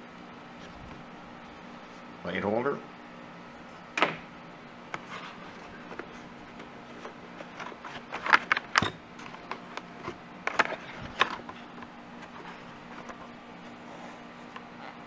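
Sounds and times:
scrapes and rustles of unpacking: 5.0s - 15.0s.

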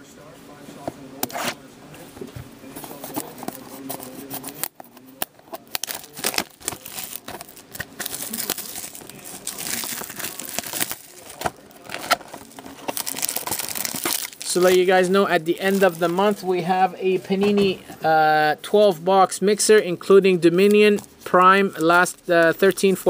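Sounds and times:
packaging crinkling and tearing: 2.8s - 16.4s.

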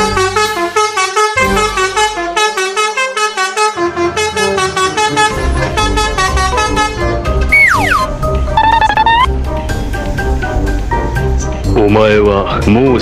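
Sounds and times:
multi-tone bus horn melody: 0.0s - 9.3s.

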